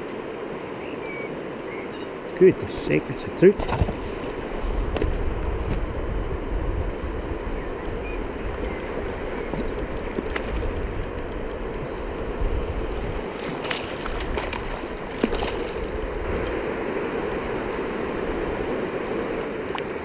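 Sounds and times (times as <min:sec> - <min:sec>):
wind rumbling on microphone: 0:03.0 - 0:20.0
water splashes and knocks: 0:03.5 - 0:04.3, 0:13.2 - 0:16.0.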